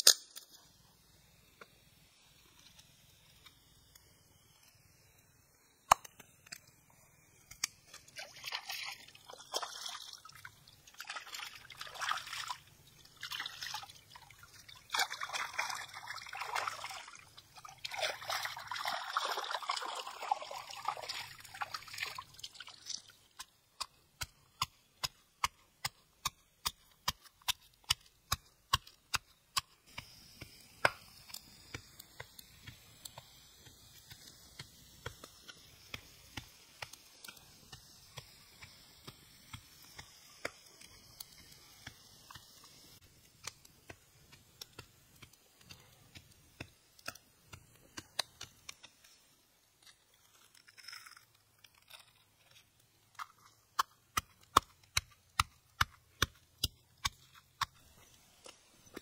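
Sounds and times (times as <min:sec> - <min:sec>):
fish rinsed in water: 0:07.9 - 0:23.5
stream water splashing: 0:08.1 - 0:23.1.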